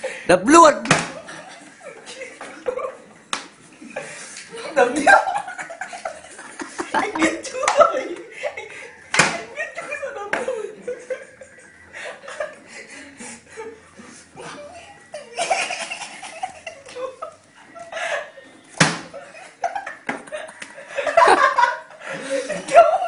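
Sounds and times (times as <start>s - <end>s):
sharp slap: 0.8s - 1.2s, 9.1s - 9.5s, 18.8s - 19.2s
people laughing: 1.1s - 23.0s.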